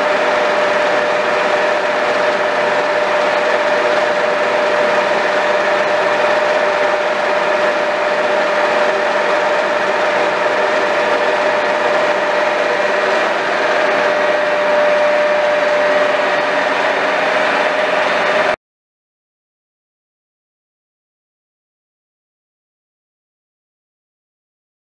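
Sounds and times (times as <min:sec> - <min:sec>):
constant whine: 0:00.0 - 0:18.6
lathe mechanical hum: 0:00.0 - 0:18.6.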